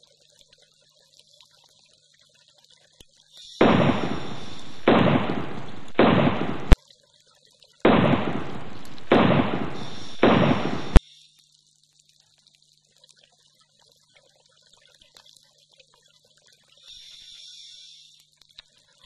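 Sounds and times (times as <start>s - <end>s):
explosion blasts: 3.6s - 6.8s, 7.9s - 11.0s
sharp crack: 3.6s - 6.8s, 7.9s - 11.0s.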